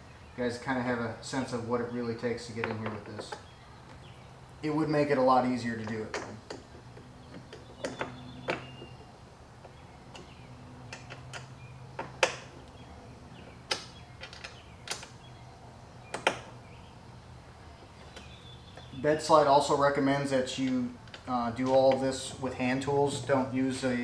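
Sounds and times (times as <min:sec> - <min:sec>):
allen wrench metallic clicks: 0:10.9 - 0:12.8.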